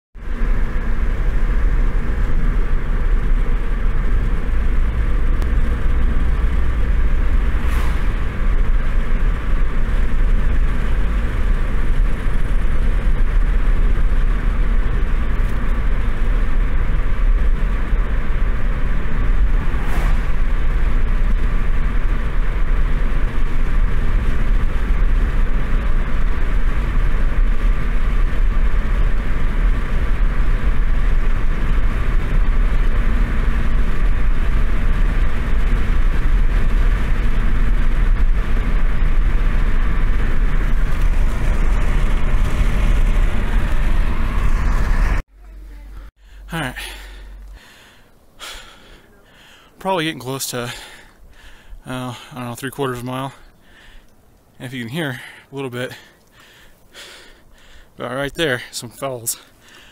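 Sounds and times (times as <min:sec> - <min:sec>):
car engine and tyre rumble: 0:00.1 - 0:59.9
brief swishes: 0:07.5 - 0:08.5, 0:19.5 - 0:20.6.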